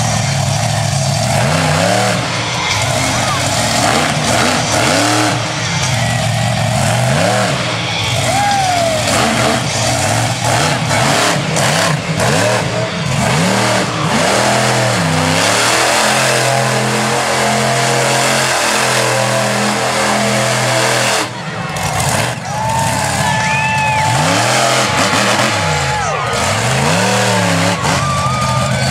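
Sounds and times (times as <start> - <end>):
monster truck engine revving: 0.0 - 28.9.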